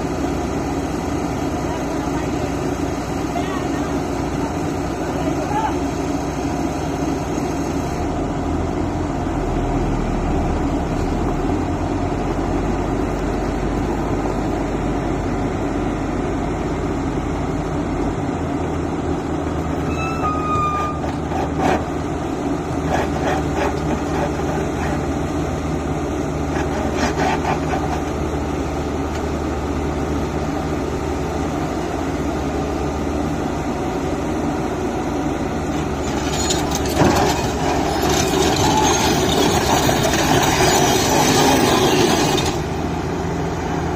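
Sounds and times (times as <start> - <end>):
excavator diesel engine droning: 0.0 - 43.9
metal clanks and rattles: 36.0 - 42.6.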